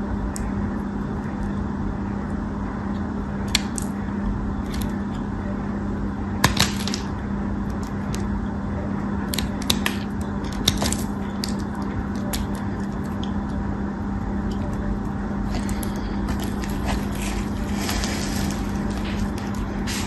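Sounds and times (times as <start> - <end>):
steady low hum: 0.0 - 20.0
knife cutting crumbly soap: 15.5 - 20.0.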